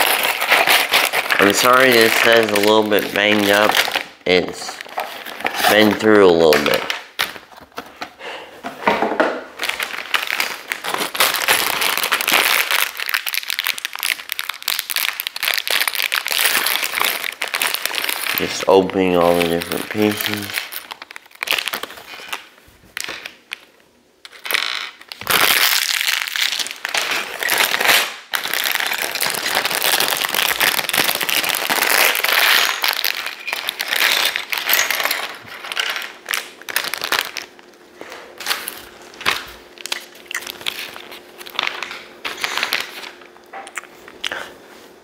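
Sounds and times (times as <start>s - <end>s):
plastic bags tearing and crinkling: 0.0s - 7.9s, 9.6s - 23.7s, 24.3s - 44.4s.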